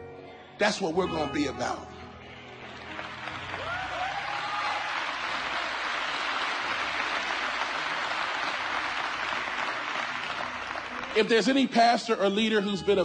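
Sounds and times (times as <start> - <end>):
crowd clapping: 2.2 - 12.2.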